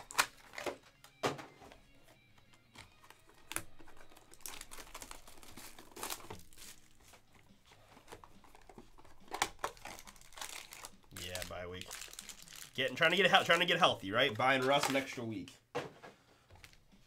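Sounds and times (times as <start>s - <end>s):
plastic wrap crinkling: 3.1s - 7.3s, 8.0s - 13.7s.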